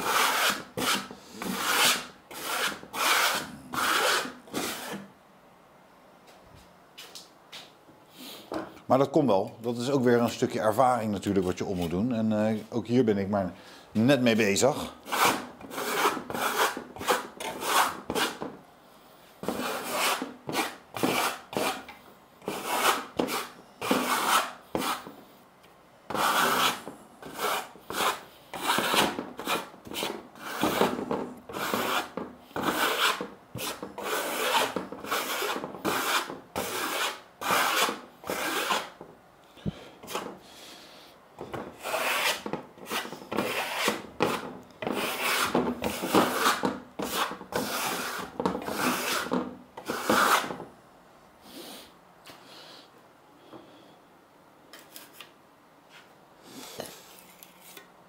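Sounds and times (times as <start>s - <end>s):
trowel scraping plaster on wood: 0.0s - 5.1s, 15.0s - 18.5s, 19.4s - 25.2s, 26.1s - 39.0s, 40.0s - 40.3s, 41.5s - 50.6s.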